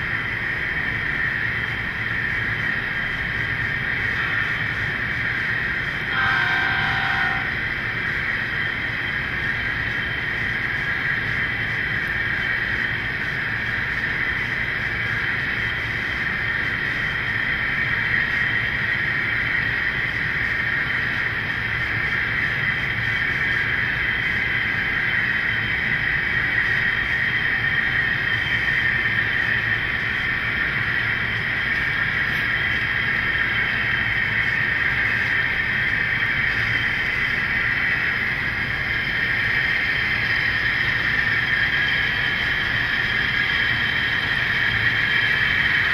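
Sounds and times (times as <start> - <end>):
model locomotive engine drone: 0.0 - 45.9
model train rolling on rails: 0.0 - 45.9.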